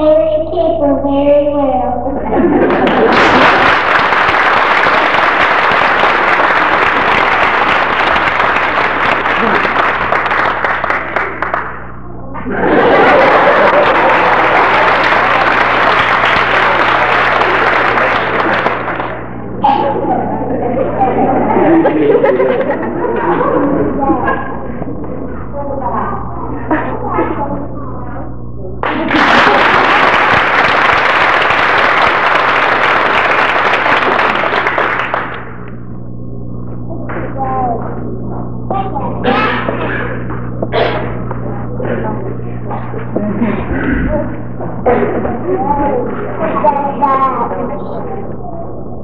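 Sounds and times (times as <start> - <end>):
audience applauding: 2.3 - 23.7, 28.8 - 35.8.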